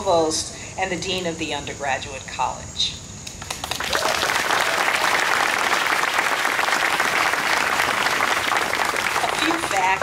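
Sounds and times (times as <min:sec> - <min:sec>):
crowd applauding: 0:03.4 - 0:10.0.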